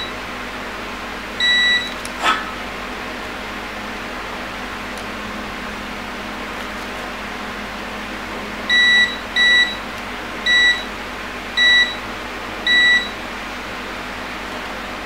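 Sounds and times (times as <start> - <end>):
fan hum: 0.0 - 15.0
multimeter beeping: 1.4 - 2.0, 8.7 - 9.8, 10.5 - 10.9, 11.6 - 12.0, 12.7 - 13.2.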